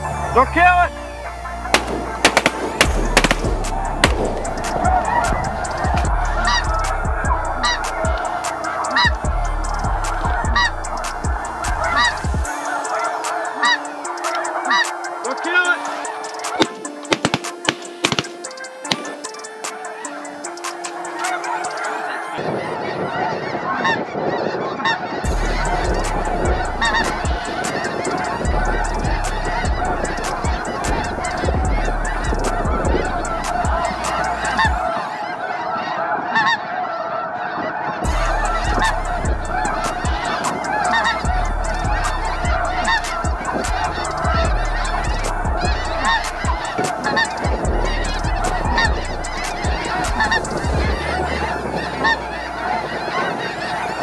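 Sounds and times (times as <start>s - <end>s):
flock of geese honking: 0.0s - 54.0s
wind rumble on microphone: 22.3s - 34.0s, 47.5s - 54.0s.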